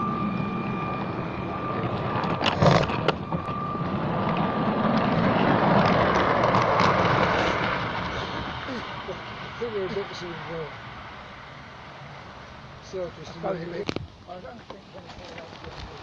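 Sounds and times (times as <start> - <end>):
thin high tone: 0.0 - 6.2
model train wheels rumbling: 1.7 - 11.4.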